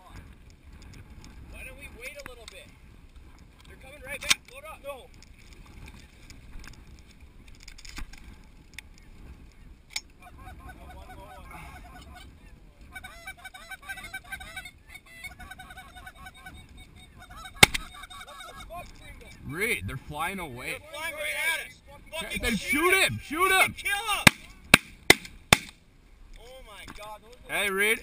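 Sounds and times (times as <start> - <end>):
geese honking: 10.2 - 24.5.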